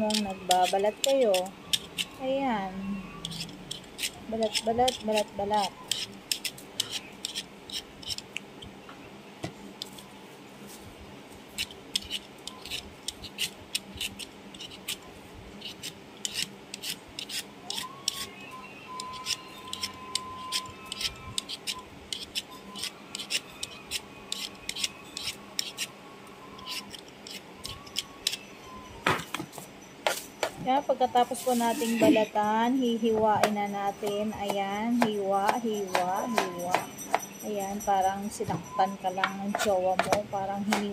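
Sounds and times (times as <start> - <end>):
knife scraping squash rind: 0.0 - 2.2, 3.2 - 8.3, 11.5 - 15.0, 15.6 - 18.3, 19.0 - 25.9, 26.6 - 28.5, 39.2 - 40.8.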